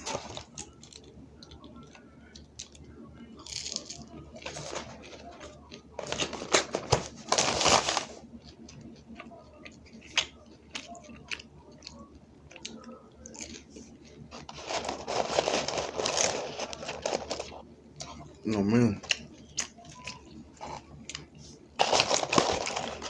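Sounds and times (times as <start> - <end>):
person chewing crunchy food: 3.4 - 6.5, 7.4 - 23.0
paper rustling: 4.4 - 8.2, 14.3 - 17.6, 21.8 - 23.0.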